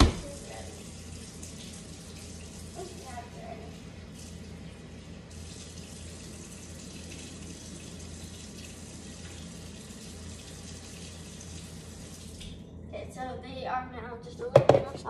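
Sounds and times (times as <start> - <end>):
tap running into sink: 0.0 - 0.6.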